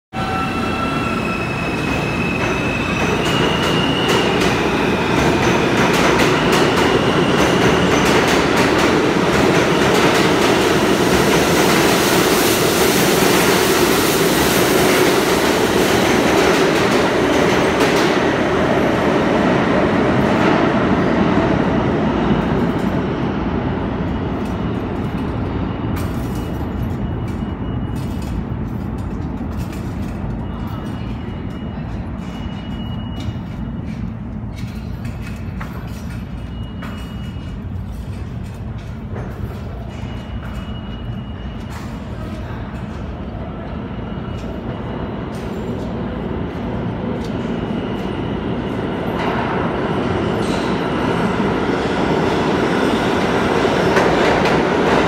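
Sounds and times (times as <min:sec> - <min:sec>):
subway train wheels rumbling: 0:00.1 - 0:55.0
high wheel squeal: 0:00.2 - 0:05.7.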